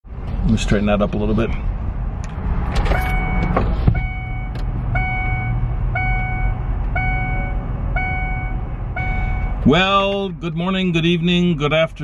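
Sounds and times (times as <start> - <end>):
vehicle warning chime: 2.9 - 10.2.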